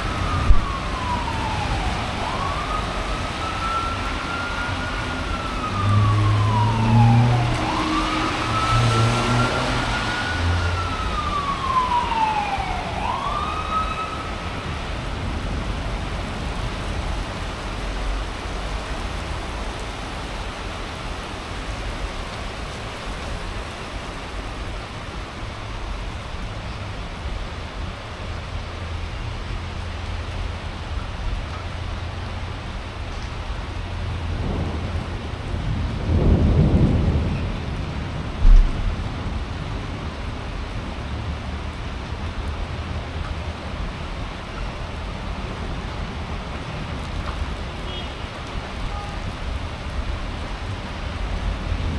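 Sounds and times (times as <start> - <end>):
emergency siren wailing: 0.0 - 19.1.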